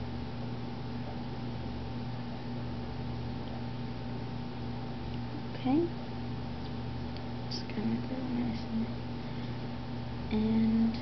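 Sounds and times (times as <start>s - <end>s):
low hum: 0.0s - 11.0s.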